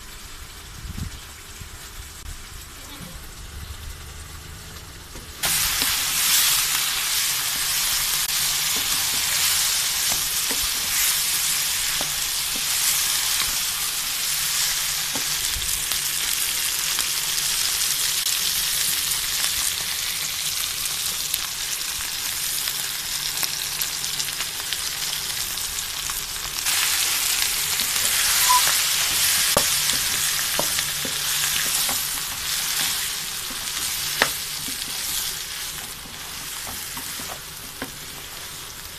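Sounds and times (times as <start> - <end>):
meat sizzling in hot oil: 0.1 - 38.9
spatula tapping pan: 8.6 - 11.1, 27.8 - 38.0.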